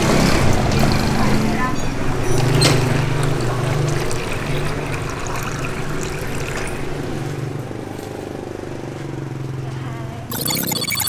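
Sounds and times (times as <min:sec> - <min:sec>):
liquid pouring into plastic cup: 0:03.2 - 0:06.8.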